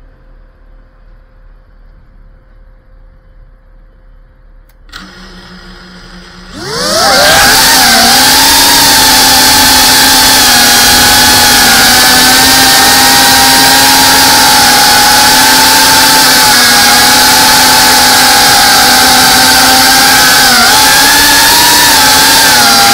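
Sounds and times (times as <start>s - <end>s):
drone motors whining: 4.9s - 22.9s.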